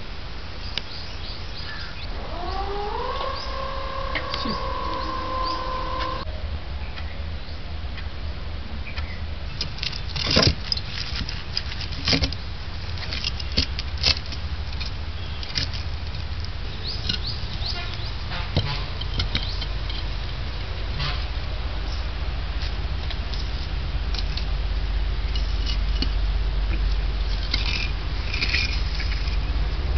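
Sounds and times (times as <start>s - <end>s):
low steady hum: 0.0s - 29.9s
bricks clacking and scraping: 18.5s - 20.1s, 26.8s - 29.5s.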